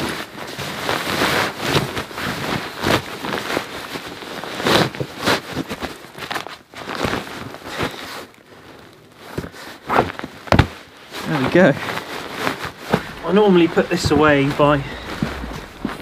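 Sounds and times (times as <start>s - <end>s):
fabric rustling and swishing: 11.0s - 16.0s.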